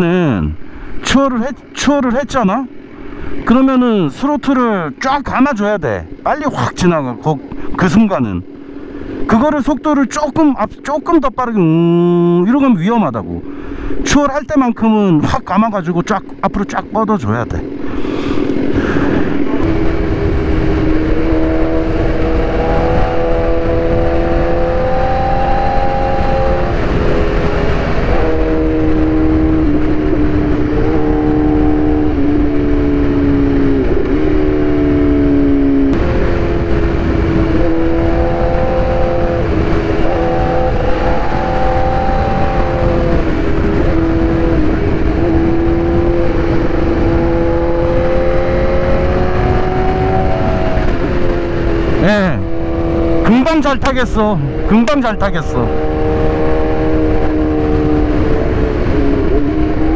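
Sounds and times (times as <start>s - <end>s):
wind and road noise: 0.0s - 59.9s
motorcycle engine revving: 15.2s - 59.9s.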